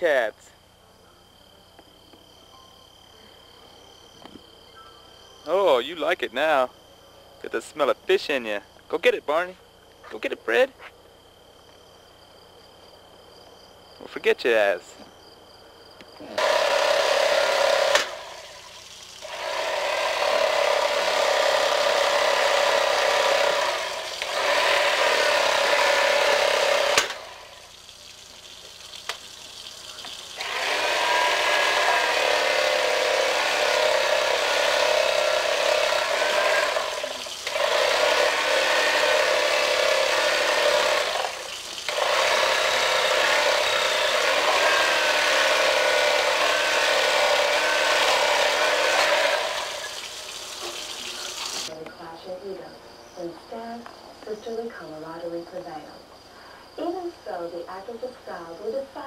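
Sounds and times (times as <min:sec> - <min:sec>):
electric tool motor whine: 0:16.3 - 0:29.3, 0:29.9 - 0:51.7.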